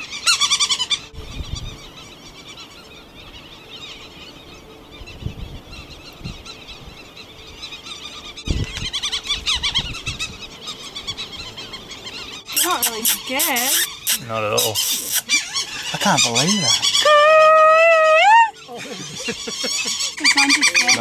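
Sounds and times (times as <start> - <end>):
petrels calling: 7.5 - 21.0.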